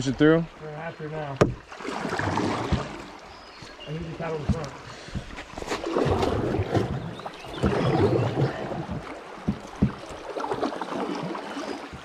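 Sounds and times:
water rushing: 0.0 - 12.0
paddle splashing through water: 0.8 - 12.0
sharp knocks: 1.4 - 1.6, 8.9 - 10.1.

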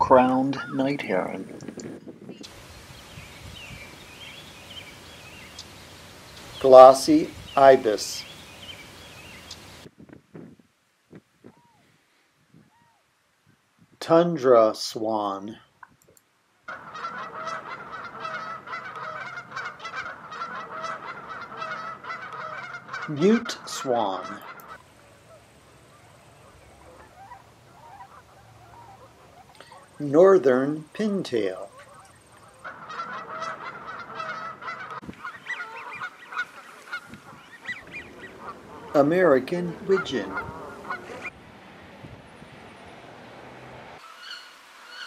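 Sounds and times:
waterfowl honking: 16.6 - 30.6, 31.5 - 41.4, 44.0 - 45.0
whistled bird calls: 44.1 - 45.0.

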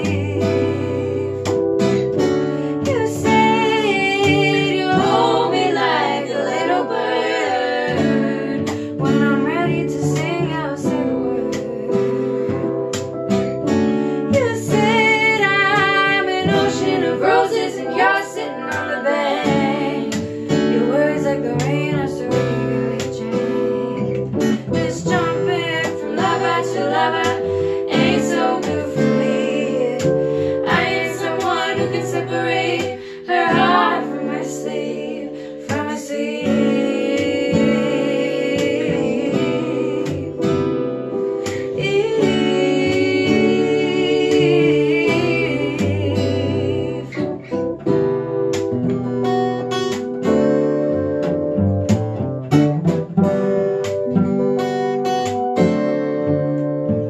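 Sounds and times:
women singing together: 0.0 - 2.1, 2.8 - 12.6, 14.3 - 47.6
cello: 0.0 - 57.0
strummed acoustic guitar: 0.0 - 57.0.

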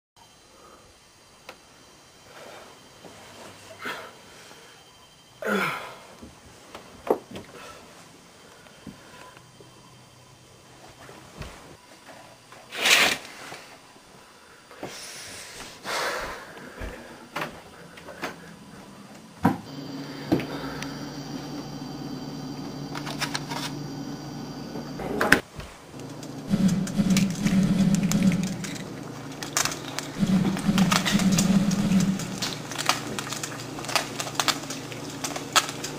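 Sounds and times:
refrigerator humming: 16.8 - 35.9.

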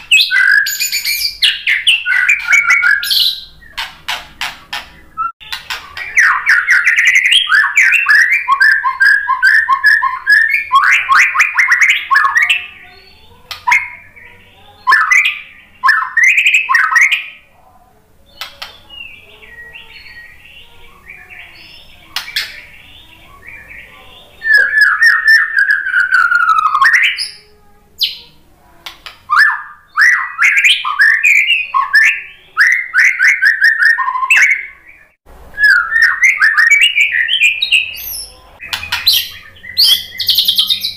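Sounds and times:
bird singing whistled trills: 0.0 - 3.9, 5.0 - 17.4, 18.3 - 28.4, 29.3 - 40.9.

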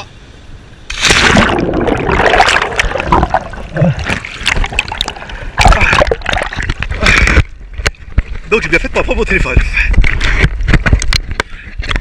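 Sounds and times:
loud splashing: 0.9 - 6.7
water churning and bubbling: 0.9 - 8.4.

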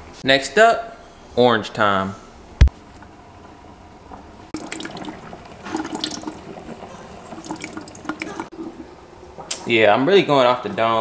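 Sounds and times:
juice squelching and splattering: 4.6 - 8.6.

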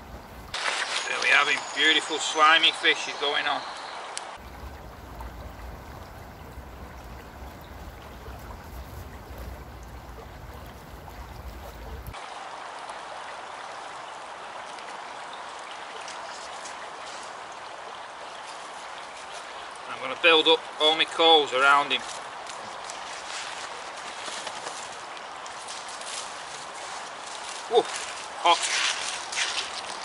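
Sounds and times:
stream rushing: 0.0 - 30.0
wind rumble on microphone: 4.4 - 12.2.

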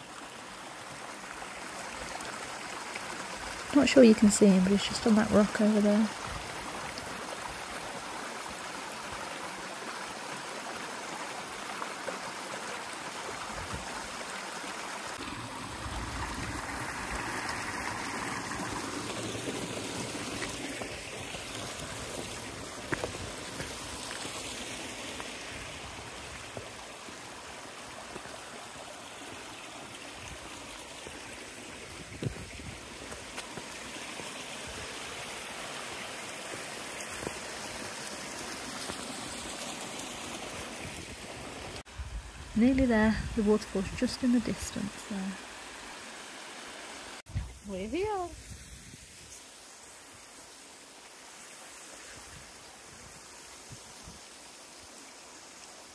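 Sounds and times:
stream splashing over rocks: 0.0 - 55.9
boots clicking on stony path: 20.4 - 24.5.

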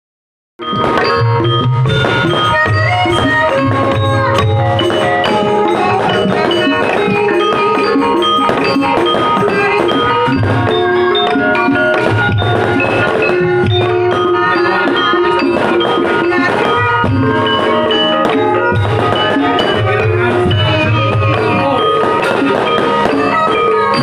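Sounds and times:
gongs and metallophones ringing: 0.6 - 24.0.

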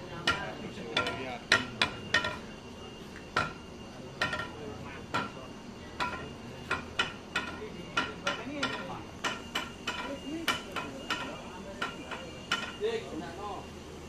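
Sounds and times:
sharp metallic knocks: 0.2 - 2.5, 3.3 - 5.4, 6.0 - 12.8.

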